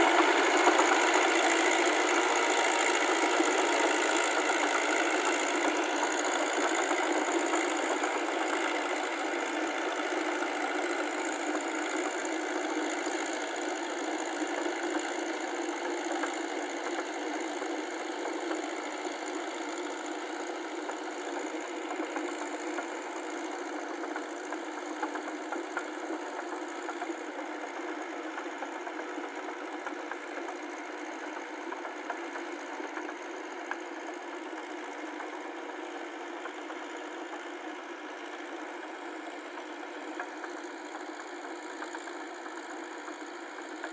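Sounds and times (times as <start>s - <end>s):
tractor engine running: 0.0s - 28.7s.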